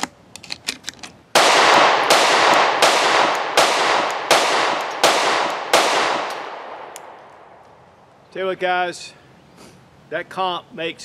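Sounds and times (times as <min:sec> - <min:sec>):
pistol shots with ringing echo: 0:01.4 - 0:07.6.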